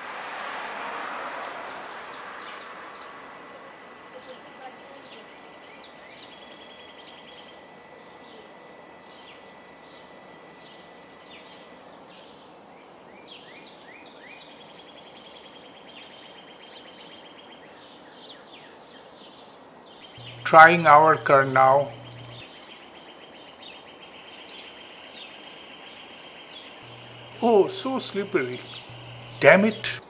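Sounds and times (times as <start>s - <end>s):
thin steady high tone: 2.2s - 12.5s, 20.2s - 22.5s, 24.8s - 30.0s
birds chirping and trilling: 3.4s - 29.8s
steady background hiss: 20.2s - 22.4s, 23.8s - 30.0s.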